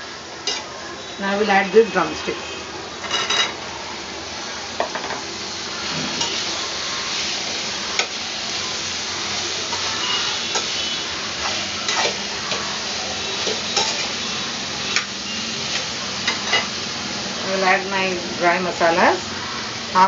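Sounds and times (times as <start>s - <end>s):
food sizzling in hot oil: 0.0s - 20.0s
spatula scraping pan: 9.7s - 12.6s, 13.3s - 14.3s.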